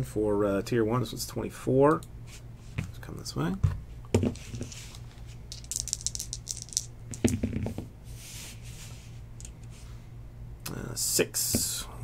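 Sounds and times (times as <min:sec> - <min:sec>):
dice clattering onto mat: 0:04.2 - 0:07.9
dice rattling in hands: 0:04.3 - 0:07.8.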